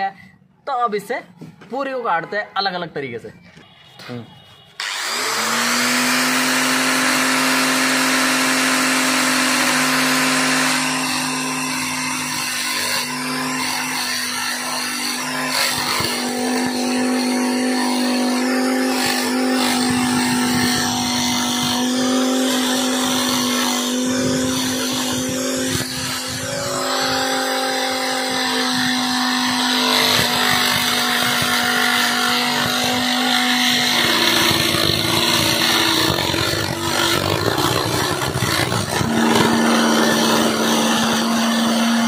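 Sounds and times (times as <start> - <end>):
angle grinder motor hum: 4.8 - 42.0.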